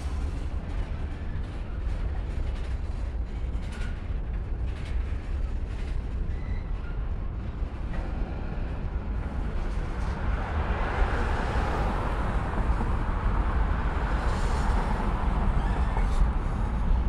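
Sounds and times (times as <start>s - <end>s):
freight cars rumbling over bridge: 7.0s - 17.0s.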